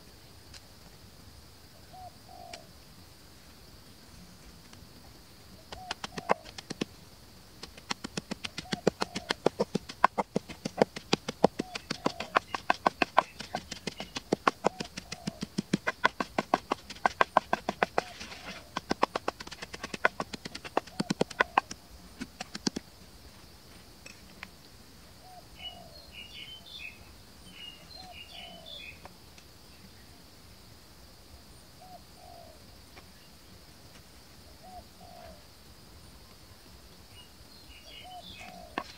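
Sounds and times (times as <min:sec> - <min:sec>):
birds chirping high: 0:05.6 - 0:06.8, 0:07.7 - 0:21.8, 0:25.3 - 0:29.0, 0:37.2 - 0:38.9
pestle pounding in a mortar: 0:07.6 - 0:22.8.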